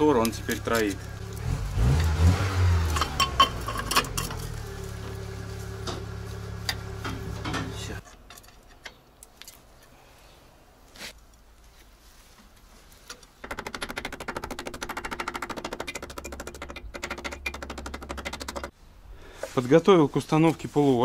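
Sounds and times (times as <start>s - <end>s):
misfiring car engine running: 0.2s - 8.0s.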